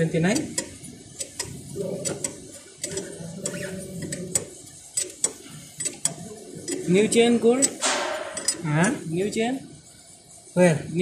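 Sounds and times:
ratchet wrench clicking: 0.2s - 9.0s.

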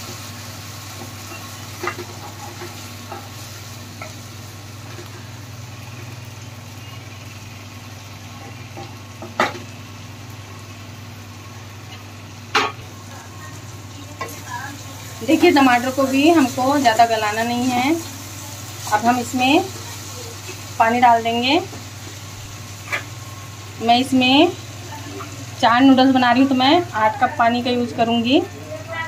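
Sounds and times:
vegetables sizzling in a pan: 0.0s - 29.0s.

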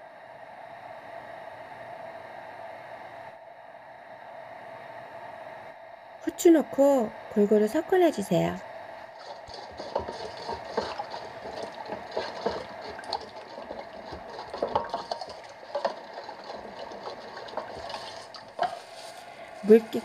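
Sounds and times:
liquid sloshing in a bowl: 9.1s - 20.0s
spoon scraping metal bowl: 9.2s - 19.2s.

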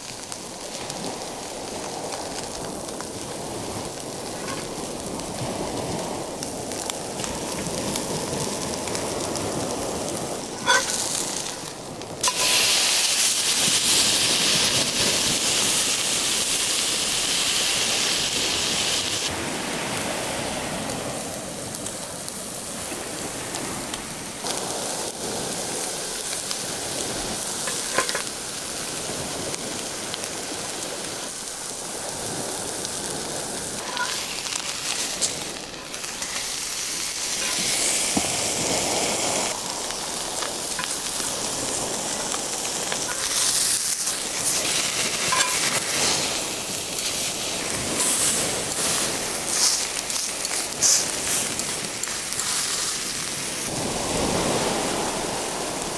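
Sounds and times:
steak sizzling in a skillet: 2.1s - 5.4s, 6.7s - 19.3s, 24.4s - 53.7s
metal tongs turning steak: 10.6s - 11.2s, 33.8s - 34.7s, 37.3s - 37.8s, 43.1s - 44.6s, 45.2s - 45.8s.

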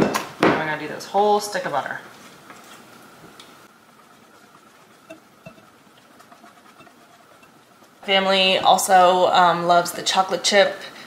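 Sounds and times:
butter grating on metal grater: 3.7s - 9.1s.

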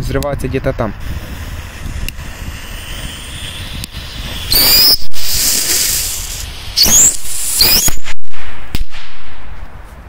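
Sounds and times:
firework fuse hissing: 1.0s - 8.8s
firework rocket rushing hiss: 1.0s - 9.4s
high whistle: 2.6s - 8.2s.

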